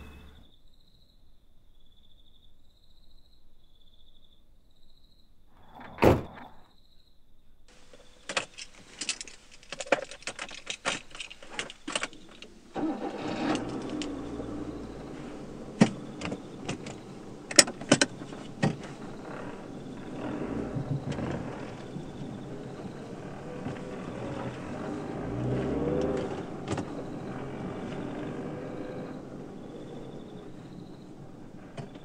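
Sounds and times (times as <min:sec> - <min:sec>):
car engine running: 0:07.7 - 0:32.0
car keys rattling: 0:07.7 - 0:32.0.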